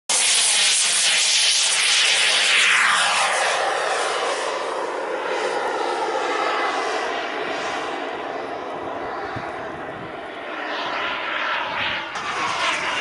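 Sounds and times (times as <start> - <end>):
model jet engine whining: 0.1 - 13.0.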